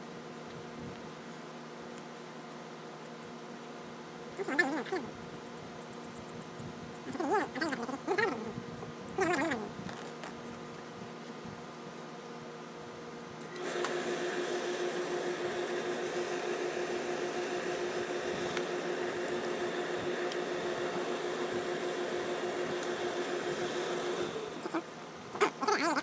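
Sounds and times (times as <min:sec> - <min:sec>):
steam press humming and hissing: 0:13.4 - 0:25.0.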